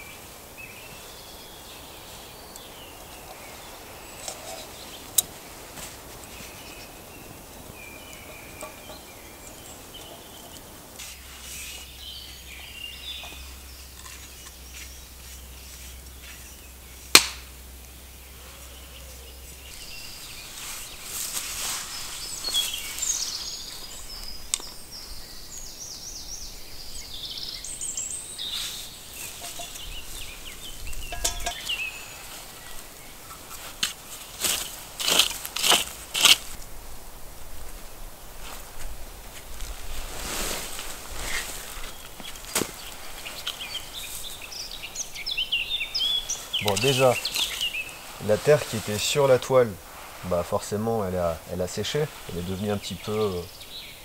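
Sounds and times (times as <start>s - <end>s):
birds singing: 0.0s - 36.6s, 40.6s - 54.0s
sharp knock: 17.2s - 17.5s.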